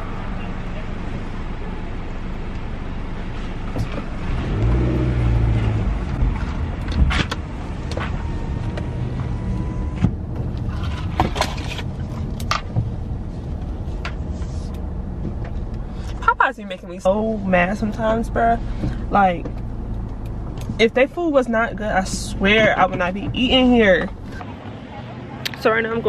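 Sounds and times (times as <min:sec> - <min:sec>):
car cabin hum: 0:00.0 - 0:26.0.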